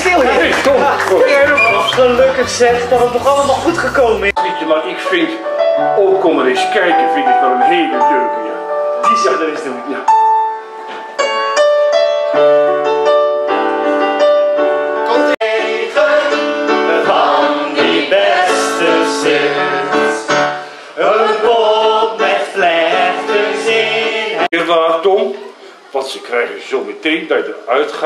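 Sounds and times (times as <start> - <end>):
electronic keyboard chords: 0.0 - 15.4
group of voices singing: 15.0 - 24.6.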